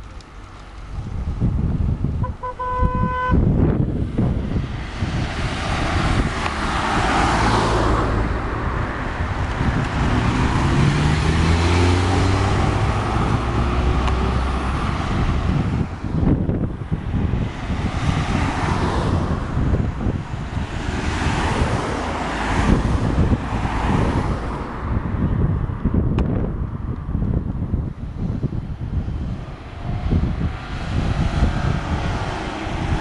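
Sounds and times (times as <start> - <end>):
wind on microphone: 0.0 - 33.0
car horn toot: 2.2 - 3.5
car engine passing: 2.2 - 25.8, 28.0 - 33.0.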